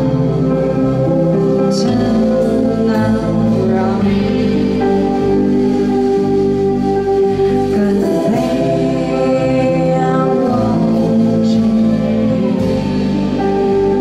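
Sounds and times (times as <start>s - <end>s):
live rock band playing: 0.0s - 14.0s
woman singing: 1.4s - 6.1s, 7.5s - 14.0s.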